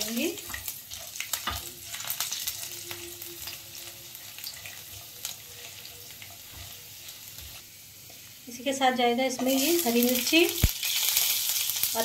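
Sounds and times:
spatula stirring in a pan: 0:00.0 - 0:08.5
garlic and spices sizzling in oil: 0:00.0 - 0:12.0.

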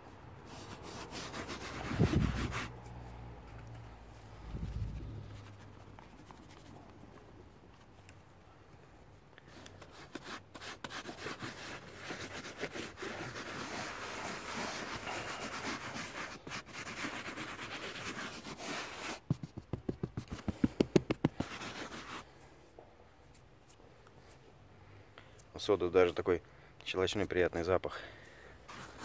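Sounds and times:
hand scrubbing carpet mat: 0:00.5 - 0:02.8, 0:09.8 - 0:22.3, 0:28.7 - 0:29.0.

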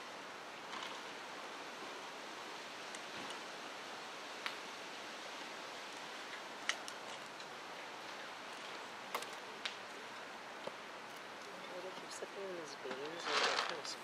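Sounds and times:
outdoor hiss: 0:00.0 - 0:14.0.

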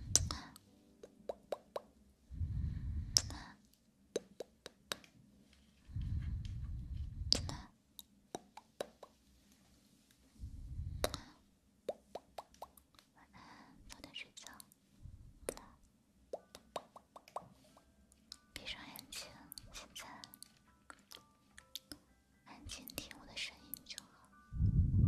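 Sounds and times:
sharp pops and clicks: 0:00.1 - 0:01.9, 0:03.1 - 0:03.4, 0:07.2 - 0:09.2, 0:11.9 - 0:13.1, 0:16.3 - 0:17.5.

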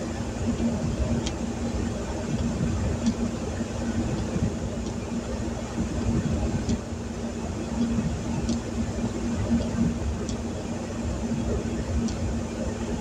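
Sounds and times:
heater fan blowing: 0:00.0 - 0:13.0
light ticks: 0:01.2 - 0:01.4, 0:02.4 - 0:03.2, 0:04.1 - 0:05.0, 0:06.6 - 0:06.9, 0:07.8 - 0:08.7, 0:09.5 - 0:10.5, 0:12.0 - 0:12.2.

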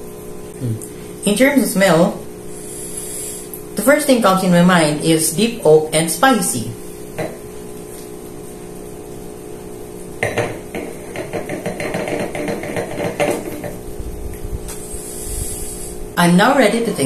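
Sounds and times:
glass base knocking on wood: 0:07.2 - 0:07.4, 0:10.2 - 0:13.8.

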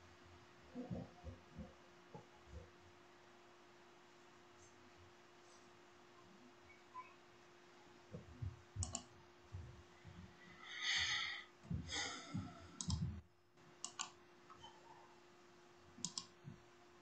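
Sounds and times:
faint steady hum: 0:00.0 - 0:17.0
soft low thumps: 0:08.1 - 0:10.3, 0:11.6 - 0:13.3
sharp clicks: 0:08.8 - 0:09.1, 0:12.8 - 0:13.1, 0:13.8 - 0:14.2, 0:16.0 - 0:16.4.

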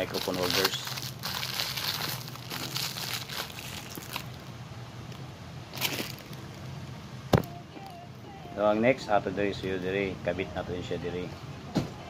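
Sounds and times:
plastic bag crinkling: 0:00.0 - 0:04.5, 0:05.7 - 0:06.7.

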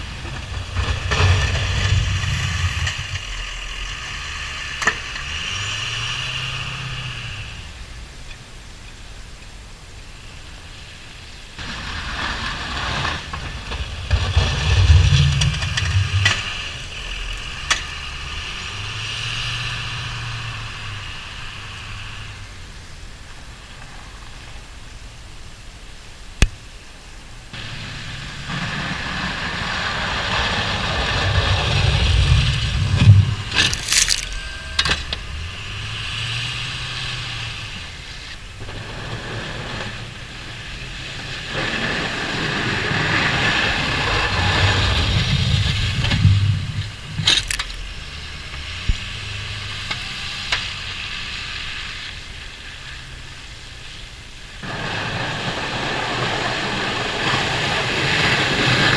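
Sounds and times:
plow scraping snow: 0:00.0 - 0:08.1, 0:10.2 - 0:24.8, 0:27.5 - 0:58.9
diesel pickup engine: 0:00.0 - 0:58.9.

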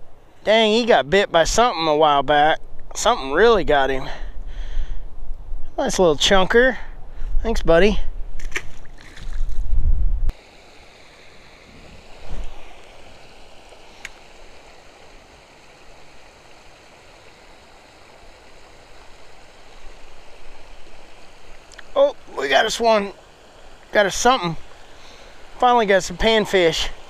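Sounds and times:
water spilling over weir: 0:10.3 - 0:27.0.

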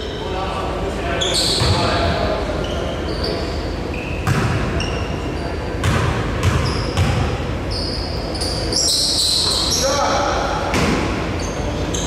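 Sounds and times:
shoe squeaks: 0:01.1 - 0:05.8, 0:06.4 - 0:10.1, 0:11.3 - 0:12.0
basketball bouncing: 0:04.2 - 0:04.8, 0:05.8 - 0:07.4.

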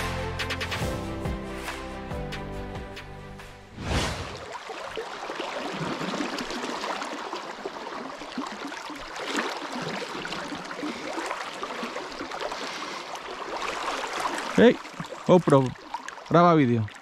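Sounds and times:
river rippling over stones: 0:04.2 - 0:17.0.

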